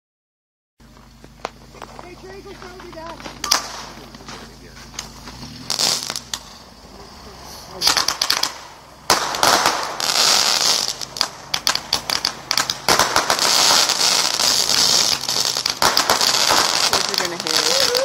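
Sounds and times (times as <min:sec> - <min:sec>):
fireworks popping and cracking: 0:00.8 - 0:18.0
hiss of burning spark tails: 0:02.8 - 0:18.0.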